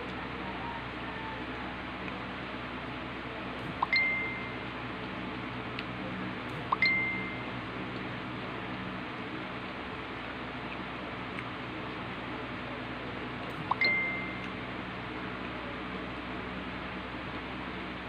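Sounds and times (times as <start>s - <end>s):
short electronic dings: 3.8s - 4.5s, 6.8s - 7.4s, 13.7s - 14.4s.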